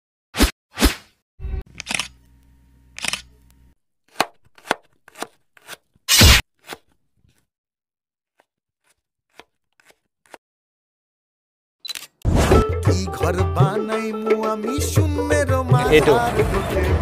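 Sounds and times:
knife chopping fruit: 0:04.1 - 0:06.9.

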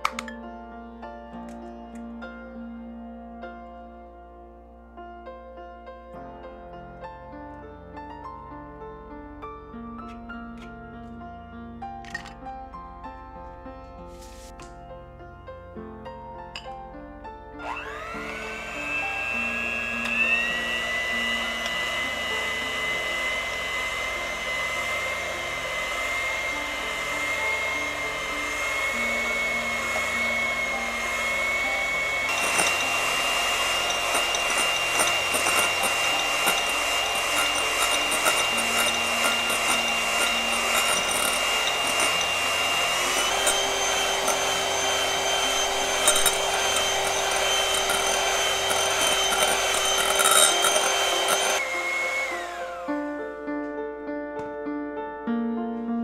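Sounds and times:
electric hand mixer whine: 0:00.0 - 0:00.3, 0:17.6 - 0:53.5.

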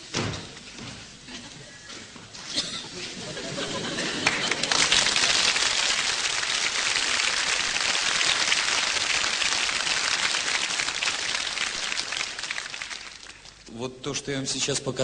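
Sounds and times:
audience applauding: 0:03.7 - 0:13.7.

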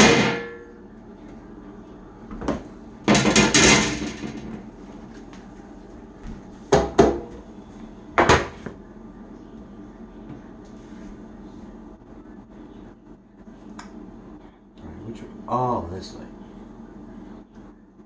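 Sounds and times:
metal bakeware clattering: 0:03.1 - 0:04.6.

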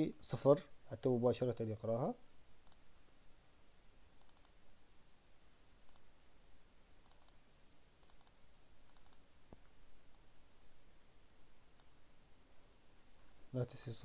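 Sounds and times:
keyboard and mouse clicks: 0:02.6 - 0:02.8, 0:04.2 - 0:04.6, 0:05.8 - 0:06.1, 0:07.0 - 0:07.4, 0:08.0 - 0:10.3, 0:11.7 - 0:12.0.

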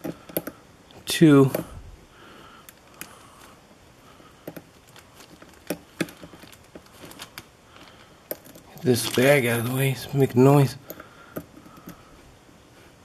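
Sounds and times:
bag rustling: 0:04.8 - 0:09.7.

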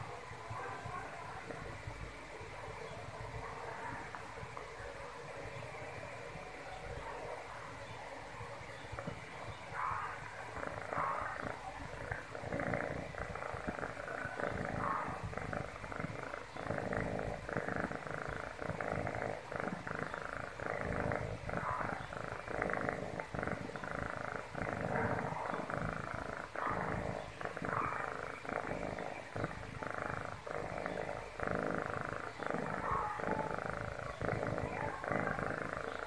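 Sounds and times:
cat purring: 0:00.0 - 0:36.0.

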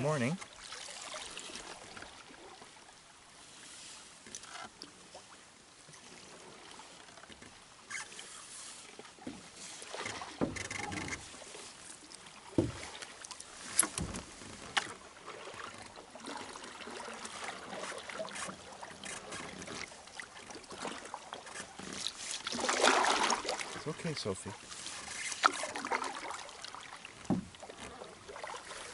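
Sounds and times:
paddle swishing through water: 0:00.0 - 0:28.9
sharp knocks: 0:27.2 - 0:27.5.

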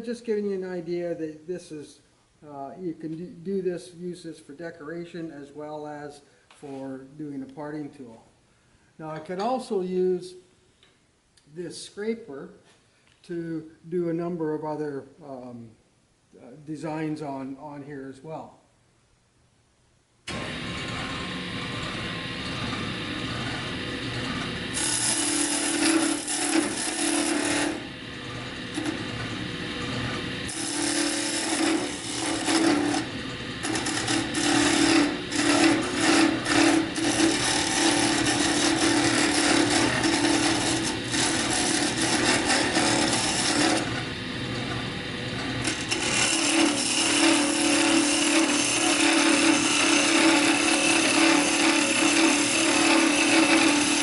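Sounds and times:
wood lathe humming: 0:20.3 - 0:54.0
scraper scraping spinning wood: 0:23.6 - 0:44.2, 0:44.8 - 0:54.0.

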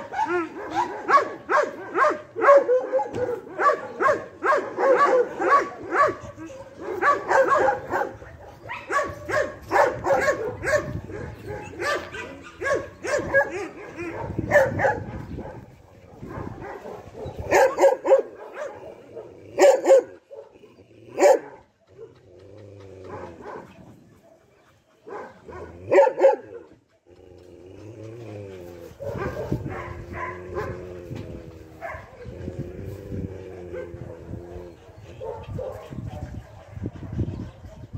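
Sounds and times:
dog barking: 0:00.0 - 0:20.6, 0:21.2 - 0:22.1, 0:23.1 - 0:26.8, 0:29.0 - 0:30.8, 0:31.8 - 0:32.2, 0:35.2 - 0:37.9.

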